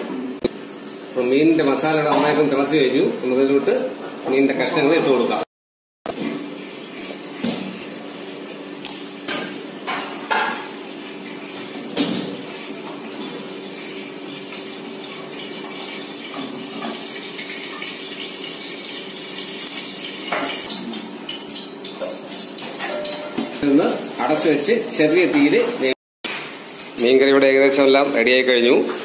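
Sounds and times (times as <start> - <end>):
utensil clinking on metal pot: 21.5 - 23.5.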